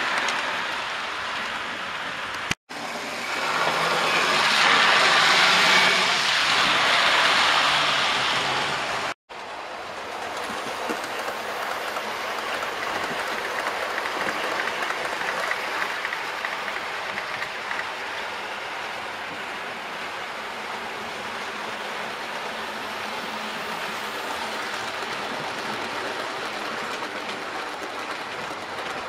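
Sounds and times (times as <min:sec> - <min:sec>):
train wheels clacking on rails: 0:09.9 - 0:19.5, 0:22.1 - 0:29.0.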